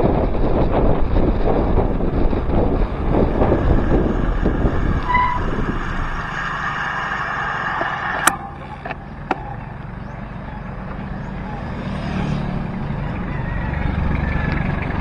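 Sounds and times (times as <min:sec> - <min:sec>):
wind rushing over microphone: 0:00.0 - 0:08.4
disc brakes squealing: 0:03.9 - 0:11.8.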